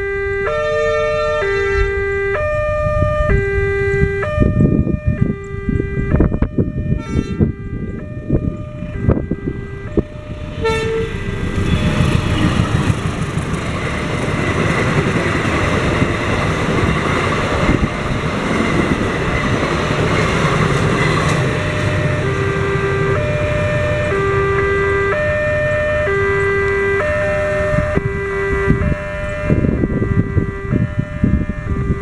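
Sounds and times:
crossing warning chime: 0.0s - 32.0s
train running over rails: 0.0s - 32.0s
train horn toot: 0.4s - 7.9s, 10.0s - 12.5s.

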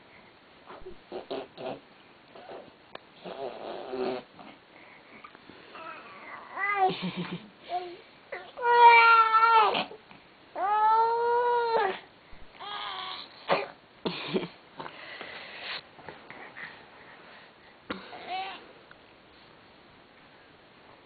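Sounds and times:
baby crying and whimpering: 7.7s - 10.0s, 10.6s - 12.0s, 12.6s - 13.5s, 18.1s - 18.7s.

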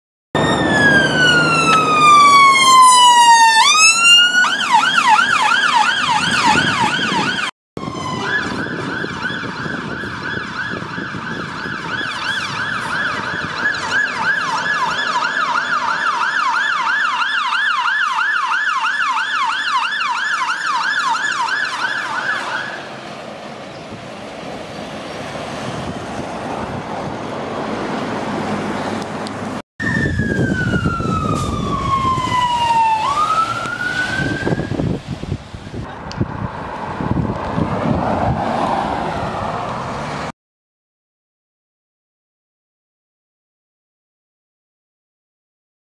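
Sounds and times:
emergency vehicle siren wailing: 0.4s - 23.2s, 29.8s - 40.3s
traffic noise: 0.4s - 40.4s.

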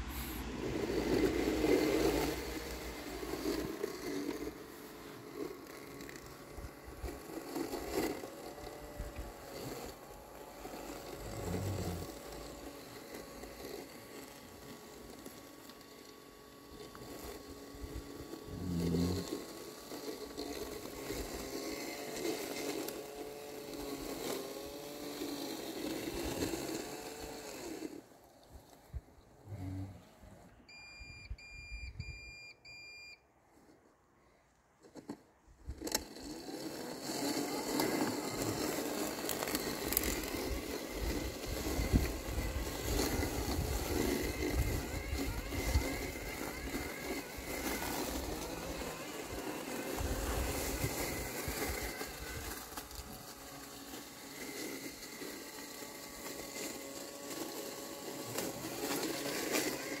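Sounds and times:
robotic mower motors whining: 0.0s - 32.9s, 33.5s - 60.0s
short electronic beeps: 30.7s - 33.2s.

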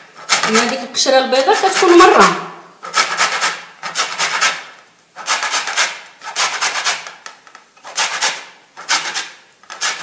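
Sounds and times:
rind grated on metal grater: 0.0s - 2.3s, 7.8s - 10.0s.

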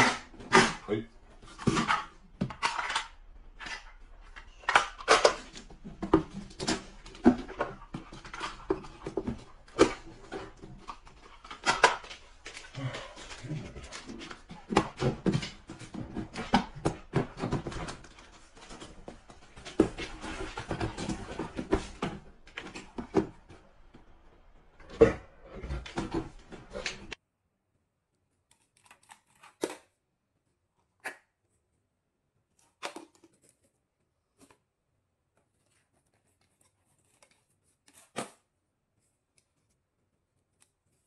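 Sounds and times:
cardboard boxes handled: 5.2s - 23.6s.

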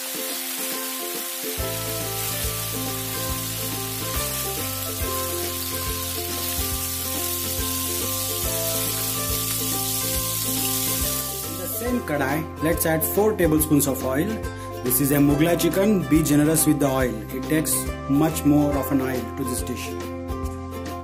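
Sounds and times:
chicken sizzling in a pan: 0.0s - 12.0s
background music with bass: 1.6s - 21.0s.

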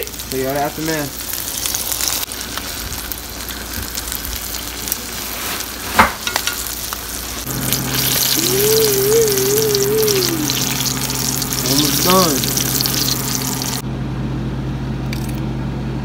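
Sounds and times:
fish sizzling in hot oil: 0.0s - 13.8s
low hum with wavering tone: 6.5s - 16.0s.

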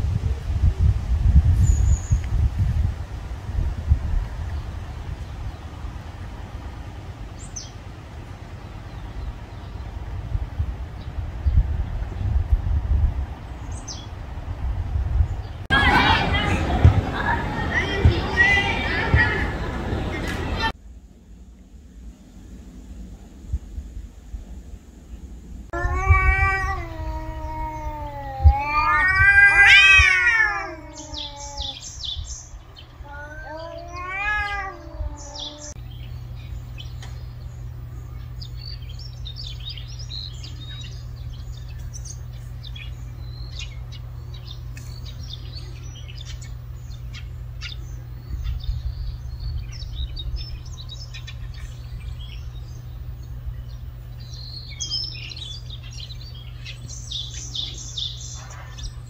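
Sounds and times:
cats yowling: 25.8s - 32.1s, 33.0s - 35.8s.

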